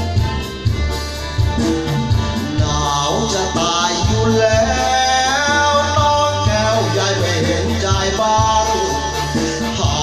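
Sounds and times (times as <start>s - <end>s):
backing music with steady beat: 0.0s - 10.0s
man singing into microphone: 2.4s - 10.0s.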